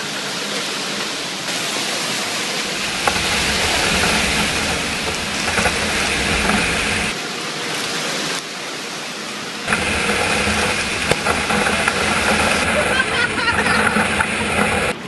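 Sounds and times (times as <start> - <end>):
wet concrete pouring: 1.5 - 7.2, 9.7 - 15.0
low rumble: 2.2 - 7.2, 9.7 - 15.0.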